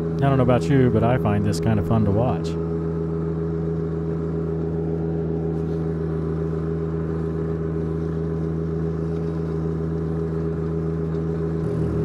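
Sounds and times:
diesel tractor engine under load: 10.9s - 12.0s.

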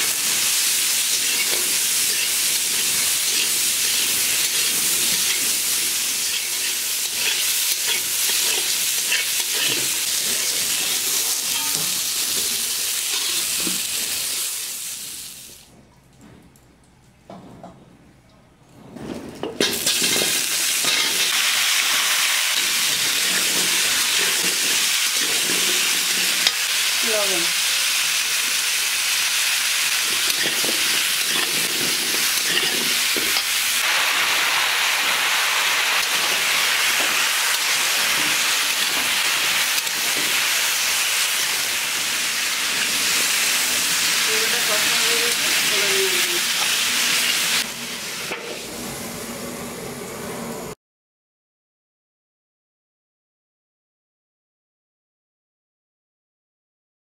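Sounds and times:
food frying in hot oil: 0.0s - 15.6s, 19.6s - 48.7s.

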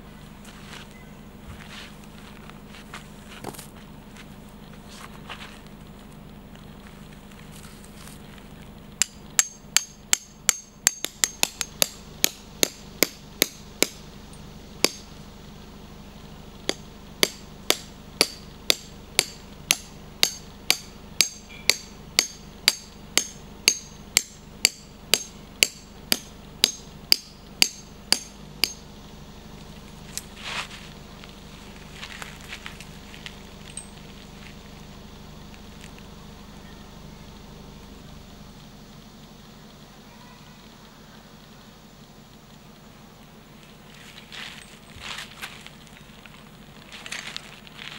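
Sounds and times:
soft rustles: 0.1s - 8.9s, 29.7s - 34.8s
hammer striking metal tent pegs: 16.7s - 28.8s.

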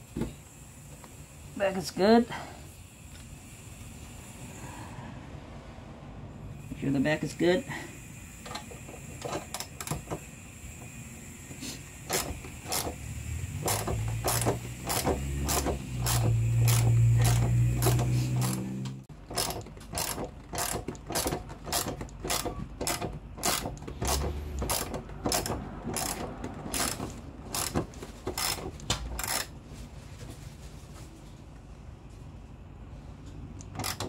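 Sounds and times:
ratchet wrench clicking: 8.0s - 29.5s, 33.6s - 34.0s.

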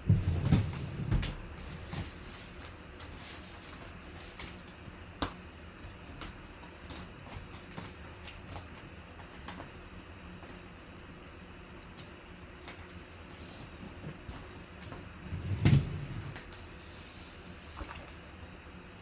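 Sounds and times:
low steady hum: 0.0s - 19.0s
faint clicks and taps: 0.4s - 10.7s, 11.8s - 13.0s.

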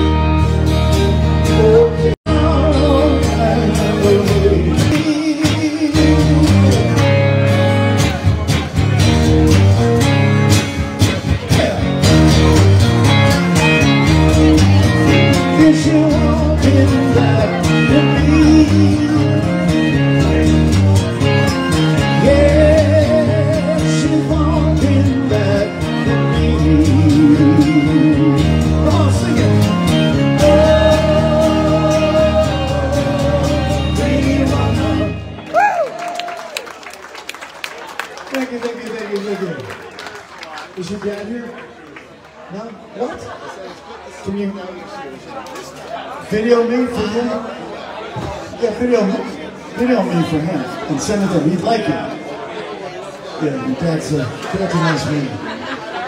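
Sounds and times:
electric guitar: 0.0s - 36.7s
man singing into microphone: 1.4s - 7.1s, 15.1s - 20.4s, 22.0s - 35.3s.

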